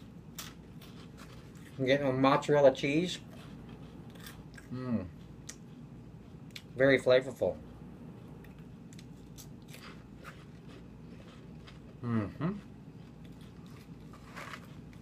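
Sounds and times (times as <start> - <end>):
person chewing crunchy snack: 0.0 - 1.9, 3.2 - 6.7, 8.4 - 15.0
person humming mm: 4.7 - 5.1, 12.0 - 12.7.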